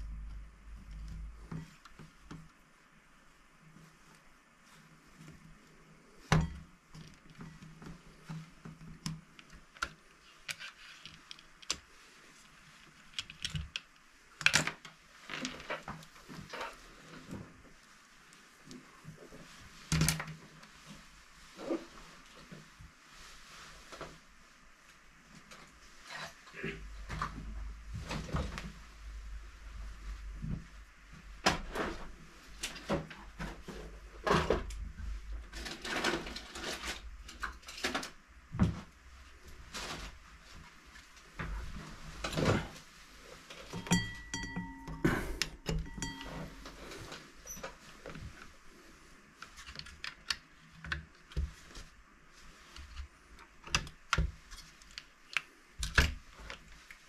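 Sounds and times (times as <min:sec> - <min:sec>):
tools handled on workbench: 0:43.7 - 0:48.4.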